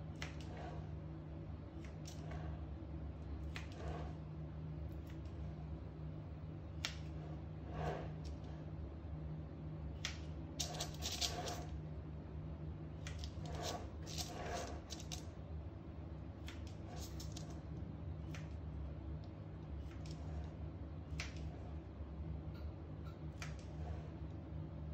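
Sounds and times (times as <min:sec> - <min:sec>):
scissors snipping dough: 0:10.0 - 0:11.7.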